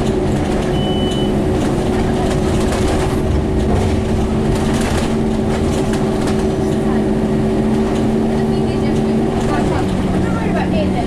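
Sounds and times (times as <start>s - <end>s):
bus diesel engine rumble: 0.0s - 11.0s
short high beep: 0.7s - 1.4s.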